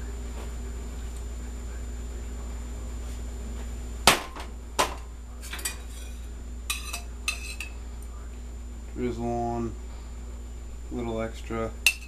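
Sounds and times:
utensil clinking against dishware: 6.7s - 7.7s.

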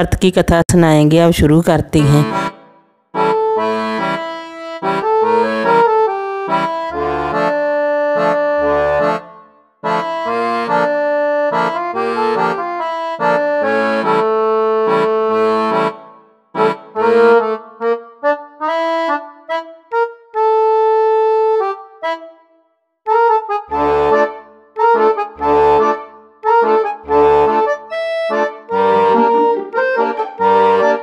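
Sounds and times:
instrumental background music: 2.0s - 31.0s.

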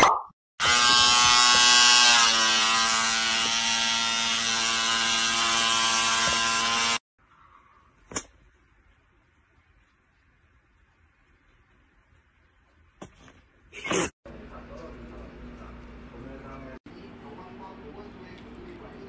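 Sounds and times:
handheld electric device buzzing: 0.6s - 7.0s.

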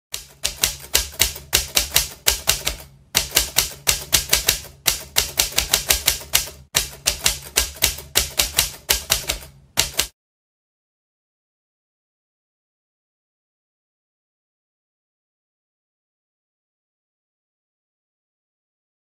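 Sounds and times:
typewriter key clicks: 0.1s - 10.1s.

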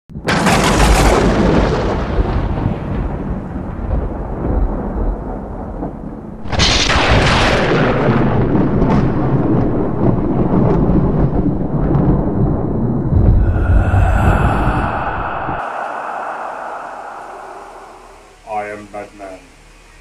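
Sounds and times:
booming crashes with rumble: 6.4s - 13.5s.

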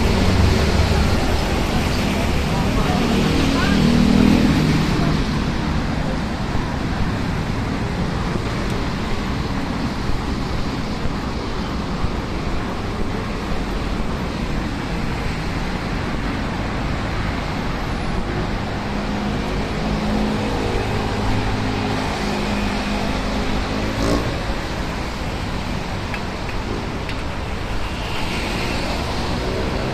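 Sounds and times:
traffic on a wet road: 0.0s - 29.9s.

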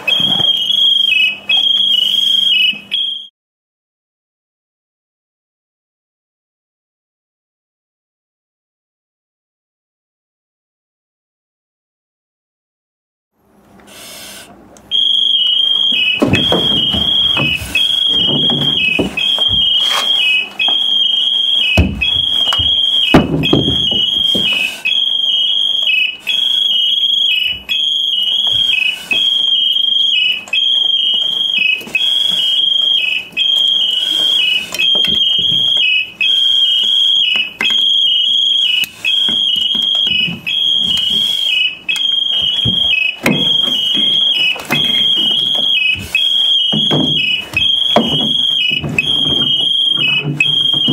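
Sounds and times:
high-pitched electronic alarm: 14.9s - 50.9s
knocks: 16.0s - 19.9s, 21.7s - 24.7s, 42.4s - 46.1s, 46.7s - 50.9s.

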